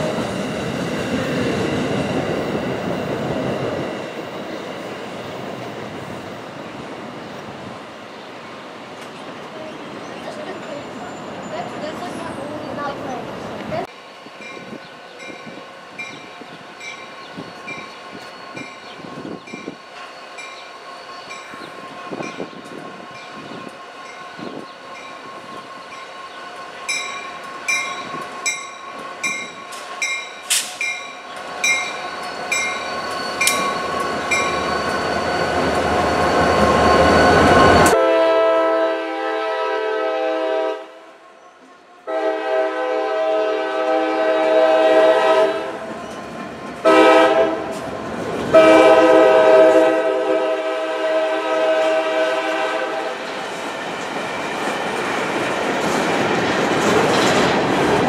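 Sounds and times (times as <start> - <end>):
freight train passing: 0.0 - 58.0
locomotive horn chord blasts: 37.8 - 41.1, 42.0 - 45.8, 46.9 - 47.8, 48.5 - 53.1.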